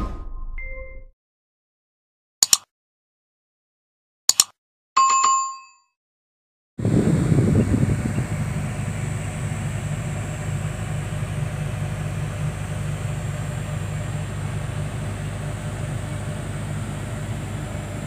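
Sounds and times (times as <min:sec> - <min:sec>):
diesel engine hum: 0:06.8 - 0:18.0.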